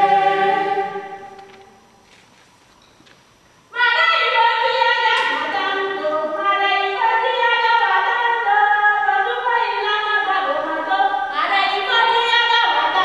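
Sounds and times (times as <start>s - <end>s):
group singing unaccompanied: 0.0s - 1.8s.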